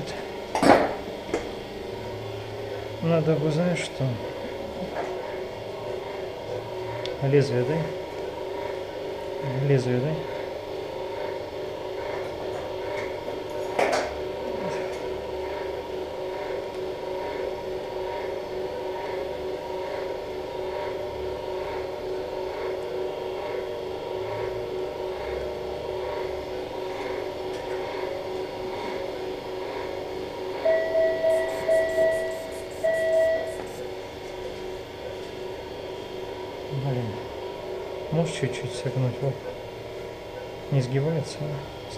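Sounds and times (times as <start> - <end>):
steady electrical hum: 0.0 - 41.9
electronic beeps: 30.7 - 33.6.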